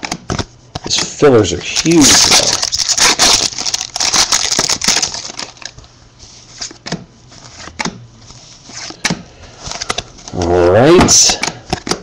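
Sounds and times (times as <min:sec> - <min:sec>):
foil wrapper crinkling and tearing: 0:01.6 - 0:05.8
cards clicking and snapping: 0:11.1 - 0:12.0.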